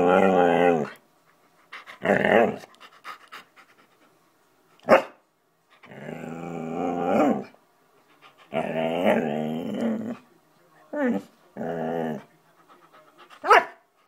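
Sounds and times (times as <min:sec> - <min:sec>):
dog moaning: 0:05.8 - 0:07.6, 0:08.4 - 0:10.2, 0:11.0 - 0:12.3.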